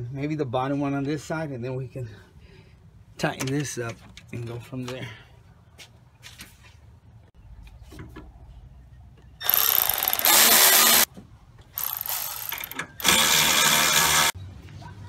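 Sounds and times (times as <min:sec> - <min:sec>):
handheld power tool running: 0:09.4 - 0:11.1, 0:11.8 - 0:14.4.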